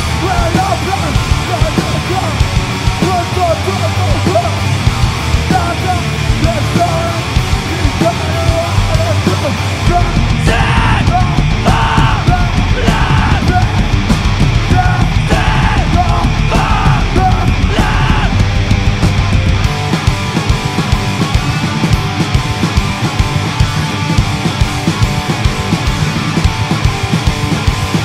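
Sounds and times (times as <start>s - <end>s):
live rock band playing: 0.0s - 28.0s
screamed vocals: 10.1s - 13.9s, 14.7s - 18.5s.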